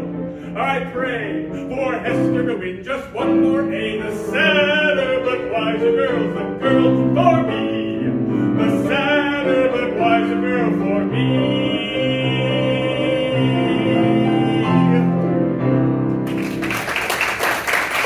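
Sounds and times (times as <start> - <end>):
man singing: 0.0 - 15.4
piano chords: 0.0 - 18.0
audience applause: 16.2 - 18.0.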